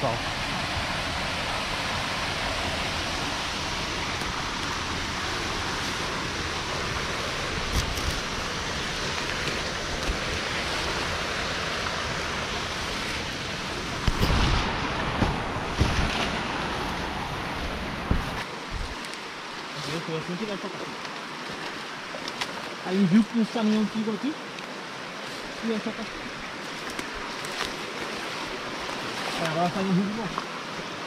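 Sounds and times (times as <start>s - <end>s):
waterfall and stream rushing: 0.0s - 31.0s
low bumps on microphone: 18.0s - 19.0s.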